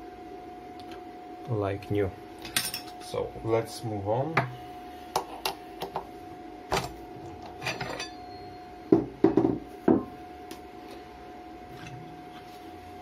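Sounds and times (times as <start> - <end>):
metal tools clinking: 7.6 - 8.2.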